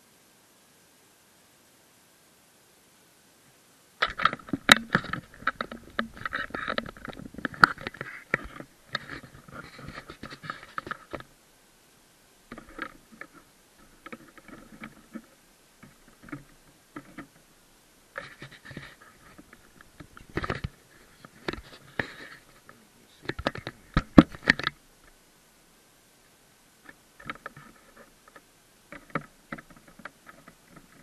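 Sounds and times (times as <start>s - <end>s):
knocks and scrapes of model ship: 4.0s - 11.3s, 12.5s - 17.4s, 18.2s - 24.8s.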